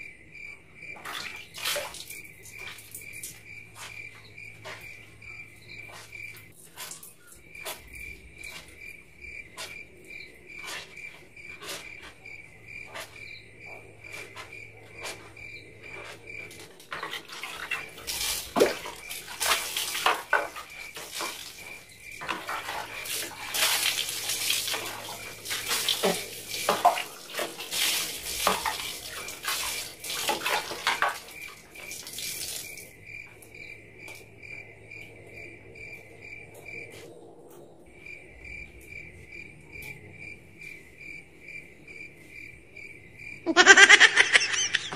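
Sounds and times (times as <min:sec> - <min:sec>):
crickets chirping: 0:00.0 - 0:44.9
water splashing into plastic bucket: 0:01.0 - 0:03.4, 0:16.9 - 0:32.9
bucket and dipper knocking: 0:16.4 - 0:32.8.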